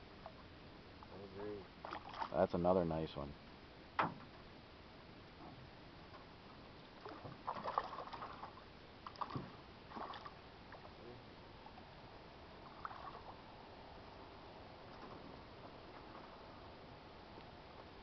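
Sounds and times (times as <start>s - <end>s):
fish splashing at water surface: 1.8s - 2.4s, 7.0s - 10.4s.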